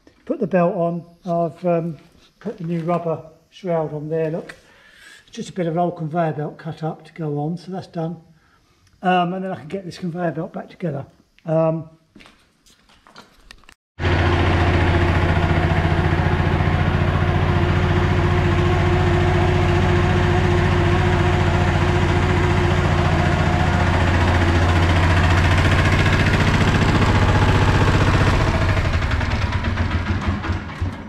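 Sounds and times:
engine humming: 0:14.0 - 0:30.8.

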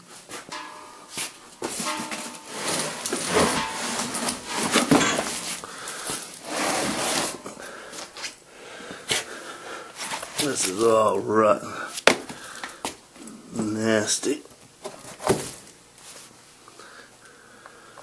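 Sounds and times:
wood scraping and cracking: 0:01.8 - 0:07.8.

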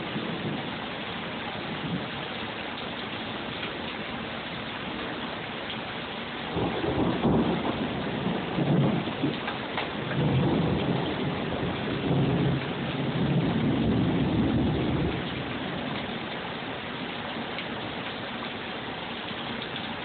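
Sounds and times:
heavy rain hissing: 0:00.0 - 0:20.0
rolling thunder: 0:06.5 - 0:15.8.

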